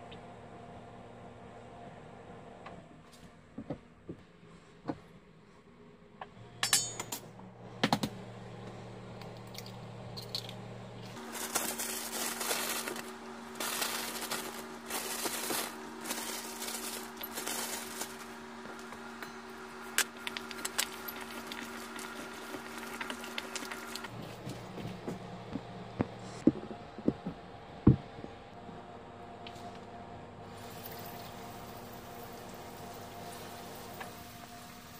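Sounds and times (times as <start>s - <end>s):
low hum: 6.2s - 34.9s
frozen fries tumbling into bowl: 11.2s - 18.3s.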